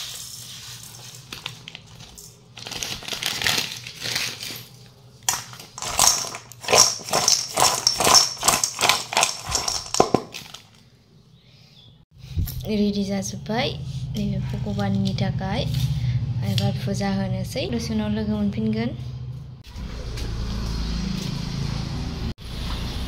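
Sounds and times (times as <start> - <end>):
newspaper rustling: 0.0 - 4.7
fruit clattering in steel bowl: 5.2 - 10.8.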